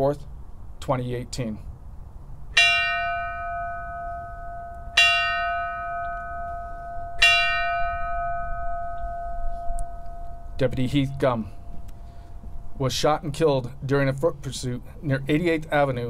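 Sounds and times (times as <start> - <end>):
bell tolling: 2.6 - 13.2.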